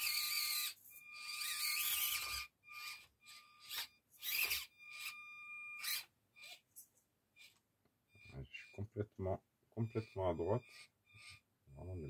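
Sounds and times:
small electric motor whining: 0:00.0 - 0:06.8, 0:07.4 - 0:08.8, 0:09.8 - 0:12.0.

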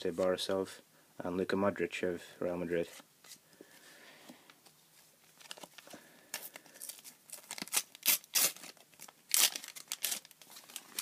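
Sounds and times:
sticker packet being torn open: 0:06.8 - 0:11.0.

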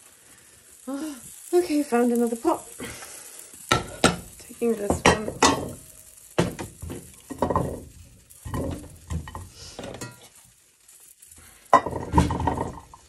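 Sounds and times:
metal pots clattering: 0:03.7 - 0:10.4, 0:11.6 - 0:13.0.

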